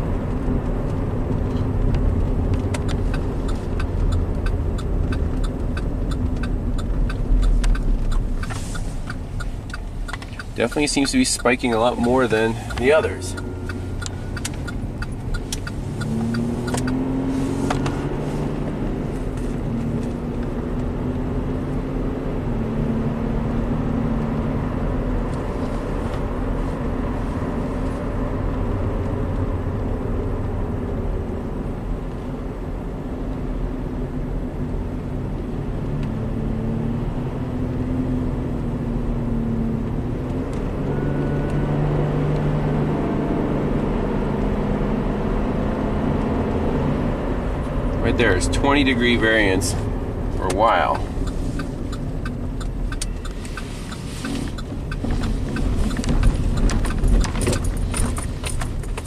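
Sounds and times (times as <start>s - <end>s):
car engine running under load: 0.0s - 59.0s
light ticks: 0.3s - 17.1s, 50.4s - 59.0s.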